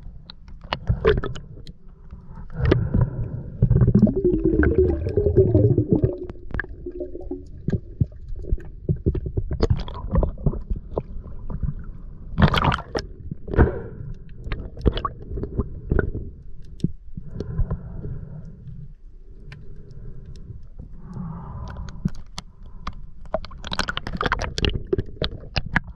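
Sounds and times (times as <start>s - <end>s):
water gurgling and sloshing: 0.0s - 25.9s
water splashing: 3.9s - 7.8s.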